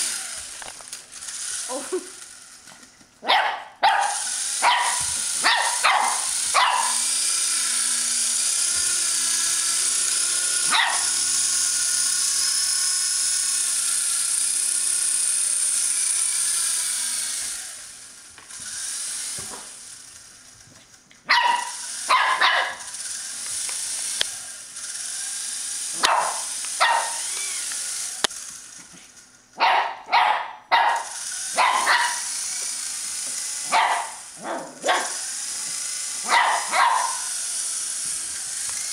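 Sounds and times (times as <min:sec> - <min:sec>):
toy helicopter rotor whine: 0:00.0 - 0:03.0, 0:03.8 - 0:38.9
puppy yapping: 0:03.2 - 0:07.1, 0:10.7 - 0:11.2, 0:21.3 - 0:22.8, 0:26.0 - 0:27.2, 0:29.6 - 0:32.3, 0:33.7 - 0:35.2, 0:36.3 - 0:37.3.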